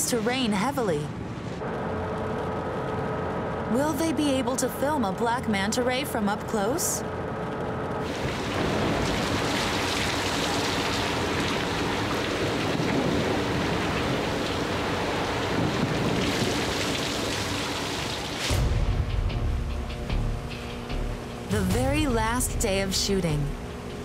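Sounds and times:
heavy rain pouring: 0:08.0 - 0:18.8.

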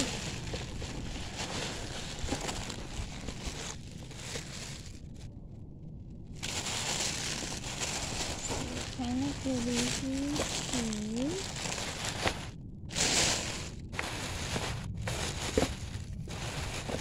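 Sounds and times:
tissue paper rustling: 0:00.0 - 0:05.2, 0:06.4 - 0:17.0
low wind rumble on microphone: 0:00.0 - 0:17.0.

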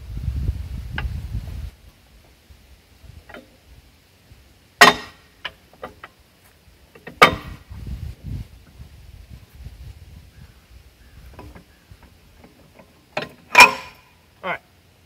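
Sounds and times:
ringing metal clanks: 0:04.8 - 0:06.0, 0:07.0 - 0:07.6, 0:12.4 - 0:14.2
clicks of steel on steel: 0:12.4 - 0:14.1.

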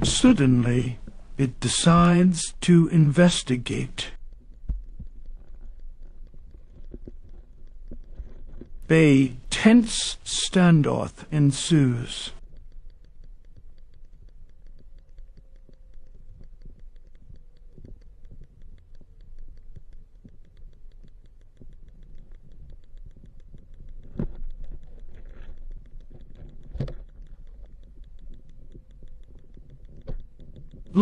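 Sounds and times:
faint steady hum: 0:00.0 - 0:31.0
crackle of tiny clicks underwater: 0:04.1 - 0:08.9, 0:12.4 - 0:31.0.

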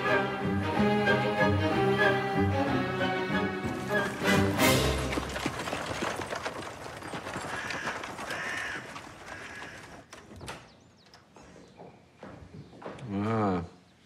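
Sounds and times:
horse hooves clip-clopping: 0:03.6 - 0:13.2
carriage rattling: 0:03.8 - 0:11.4.

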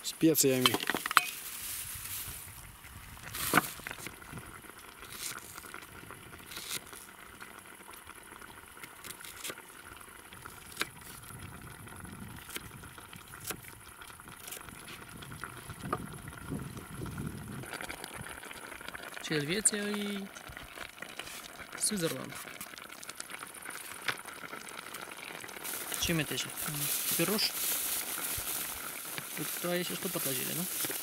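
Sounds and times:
meat sizzling in oil: 0:17.7 - 0:31.0
sharp pops of frying: 0:27.9 - 0:29.4.

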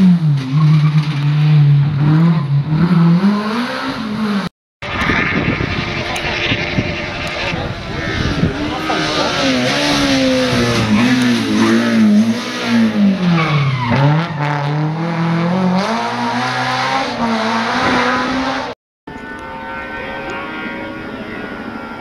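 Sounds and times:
rally car engine revving: 0:00.0 - 0:22.0.

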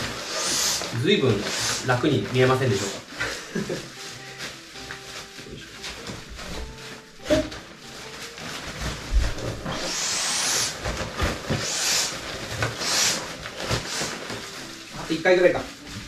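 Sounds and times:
air hissing through valve: 0:00.0 - 0:02.1, 0:09.7 - 0:10.8, 0:11.6 - 0:14.2.

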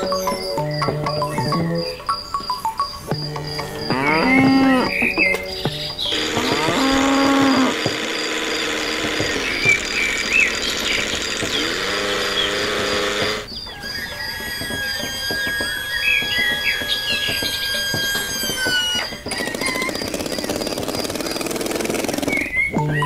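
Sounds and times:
cattle mooing: 0:03.8 - 0:04.9, 0:06.1 - 0:13.4.

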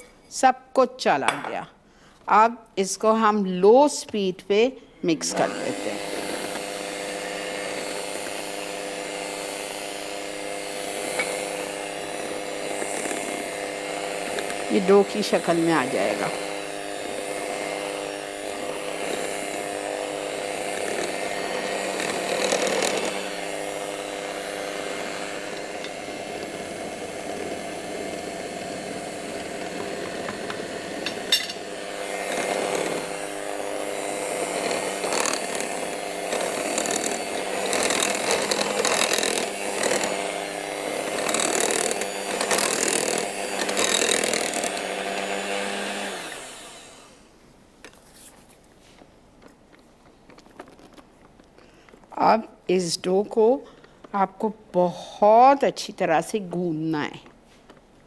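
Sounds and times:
electric hand mixer running: 0:05.2 - 0:47.4.

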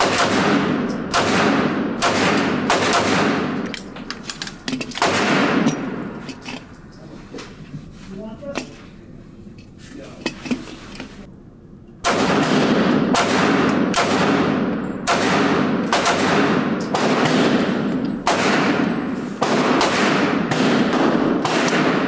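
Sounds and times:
pistol shots echoing indoors: 0:00.0 - 0:03.8, 0:04.9 - 0:06.2, 0:12.0 - 0:22.0.

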